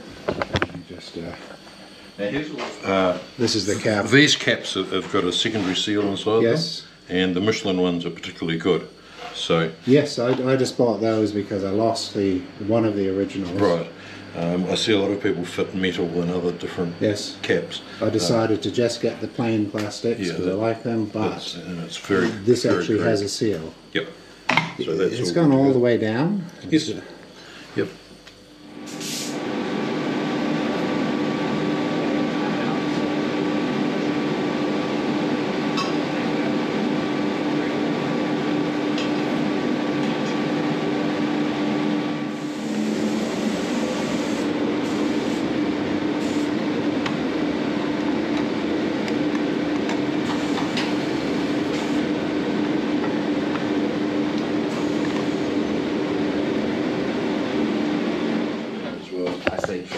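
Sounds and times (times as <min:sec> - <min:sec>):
mechanical hum: 0:00.0 - 0:59.9
hiss: 0:28.8 - 0:29.4, 0:42.3 - 0:45.5.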